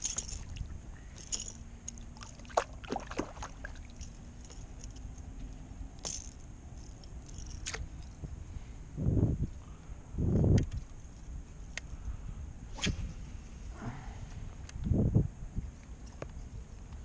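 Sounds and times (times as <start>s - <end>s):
fishing gear clicks and knocks: 0.0s - 8.2s
low background rumble: 0.0s - 17.0s.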